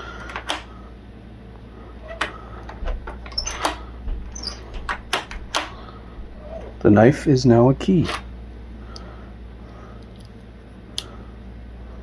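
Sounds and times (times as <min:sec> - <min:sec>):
faint lock squeaks: 0:03.2 - 0:05.7.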